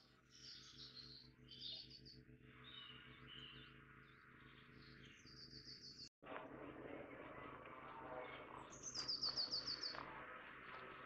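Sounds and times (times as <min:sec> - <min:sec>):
songbirds singing: 0:00.0 - 0:06.1, 0:08.2 - 0:10.2.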